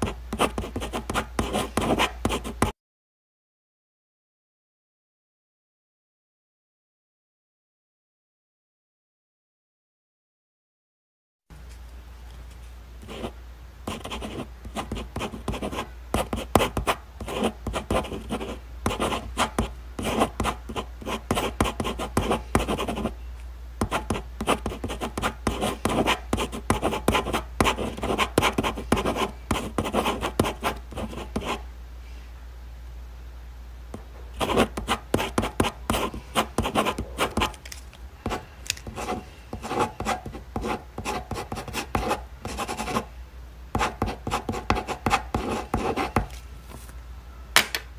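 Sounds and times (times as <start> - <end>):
pen scratching on paper: 0.0 - 2.7, 13.0 - 23.1, 23.8 - 31.6, 34.4 - 37.5, 38.3 - 43.1, 43.8 - 46.3
steady low hum: 11.5 - 47.9.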